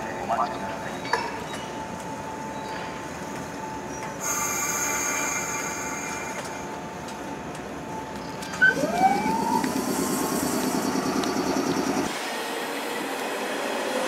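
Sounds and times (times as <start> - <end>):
electric train running slowly: 0.0 - 14.0
train wheels squealing: 3.8 - 6.7.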